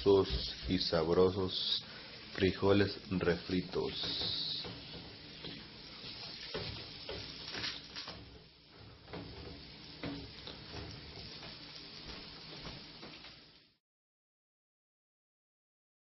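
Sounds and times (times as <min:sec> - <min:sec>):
food sizzling on stovetop: 0:00.0 - 0:13.8
spoon knocking and scraping pans: 0:03.9 - 0:11.5.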